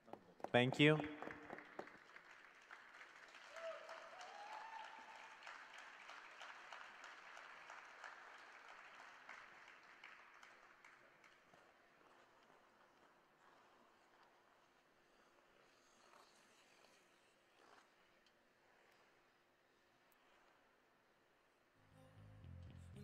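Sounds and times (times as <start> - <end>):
audience applause: 0.6 - 11.4.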